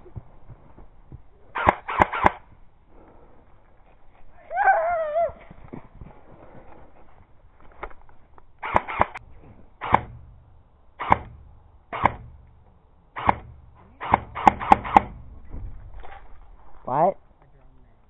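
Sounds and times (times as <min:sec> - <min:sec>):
airsoft gun shots: 0:01.6 - 0:02.4, 0:08.6 - 0:09.2, 0:09.8 - 0:10.4, 0:11.0 - 0:12.5, 0:13.2 - 0:15.4.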